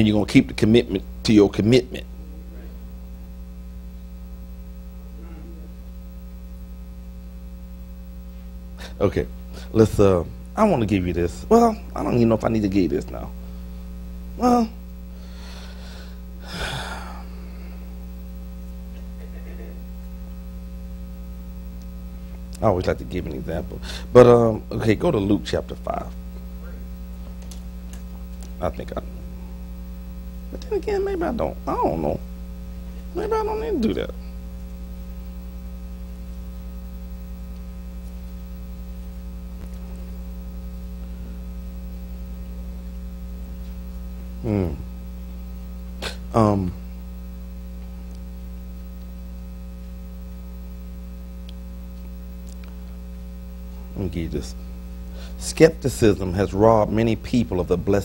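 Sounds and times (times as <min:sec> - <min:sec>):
electrical mains hum: 0:00.0 - 0:58.0
man exhaling into microphone: 0:15.2 - 0:17.9.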